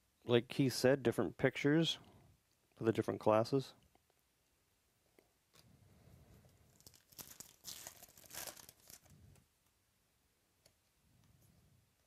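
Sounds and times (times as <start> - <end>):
foil pack crinkling and tearing: 6.7 - 9.2.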